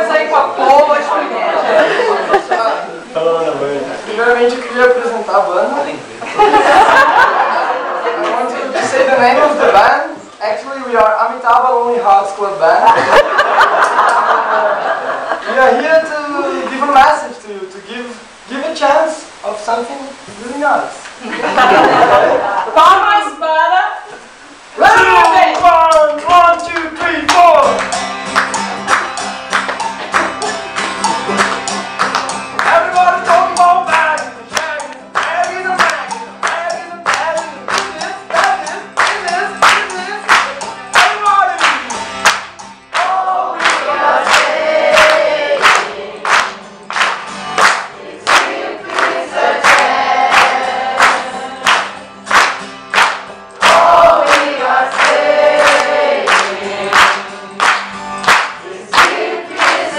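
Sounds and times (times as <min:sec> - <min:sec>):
hands clapping a beat: 0:13.0 - 0:14.4, 0:25.1 - 0:59.9
strummed acoustic guitar: 0:25.2 - 0:59.9
group singing: 0:42.9 - 0:52.1, 0:53.6 - 0:59.9.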